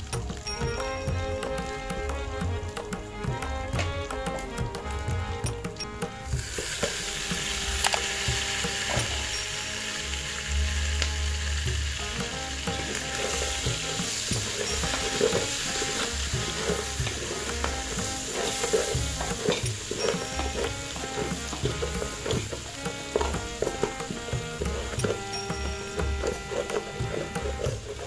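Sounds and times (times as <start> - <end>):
meat sizzling in a pot: 6.1 - 28.0
wooden spoon scraping pot: 12.2 - 28.0.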